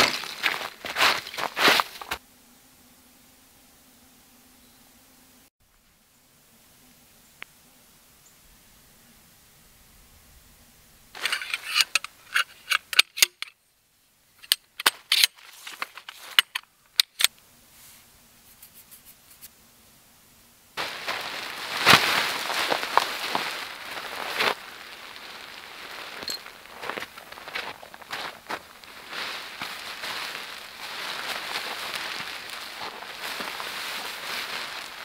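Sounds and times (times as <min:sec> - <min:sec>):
nylon fabric crinkling: 0:00.0 - 0:02.2, 0:20.8 - 0:35.0
metal tent poles clacking: 0:11.2 - 0:13.5, 0:14.4 - 0:17.3.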